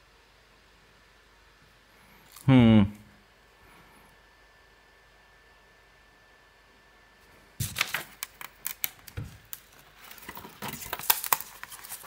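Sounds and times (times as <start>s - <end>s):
stiff card sheets rustling: 7.6s - 12.0s.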